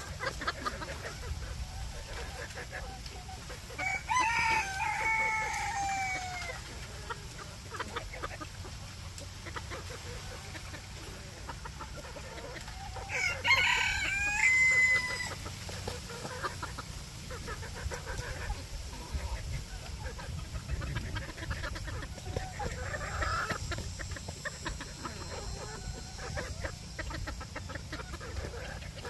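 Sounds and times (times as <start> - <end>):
rooster crowing: 3.7 - 6.8, 12.9 - 15.4, 24.9 - 26.8.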